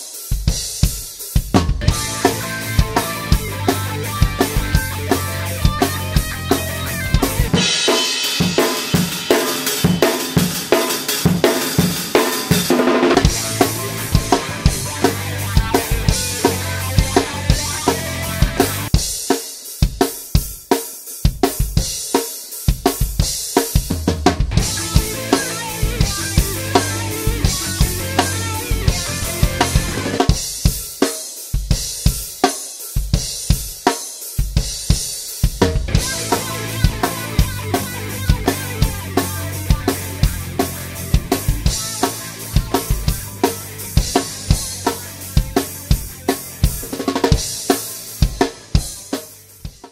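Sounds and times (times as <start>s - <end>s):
band track with bass: 0.0s - 19.2s, 23.0s - 30.8s, 34.9s - 49.9s
drum kit rock groove: 0.0s - 49.9s.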